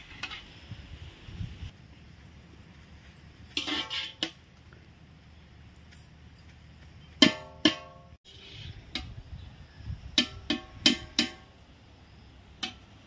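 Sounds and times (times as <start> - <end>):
metal ladle clanging on pot: 10.2 - 11.5.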